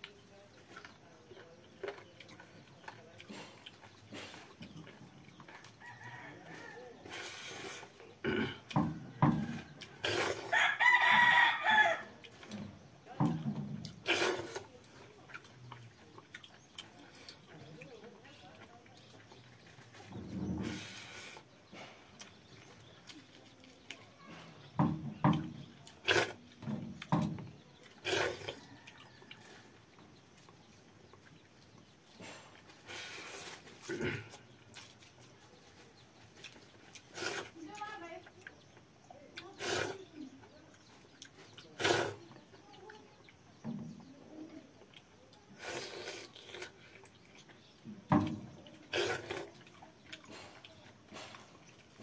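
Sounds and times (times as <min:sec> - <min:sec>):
eating mouth sounds: 0:09.5 - 0:10.5, 0:13.8 - 0:24.7, 0:25.3 - 0:29.7, 0:30.4 - 0:37.6, 0:38.2 - 0:43.4, 0:44.8 - 0:47.9, 0:48.6 - 0:52.0.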